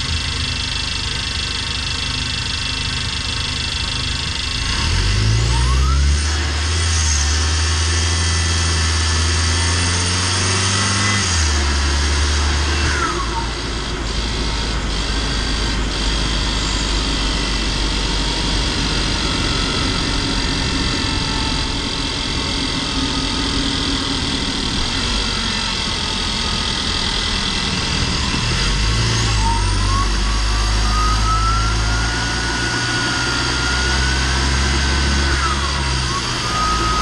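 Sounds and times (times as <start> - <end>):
van engine and road drone: 0.0 - 37.0
turbo whistle rising in pitch: 5.4 - 6.3, 18.4 - 37.0.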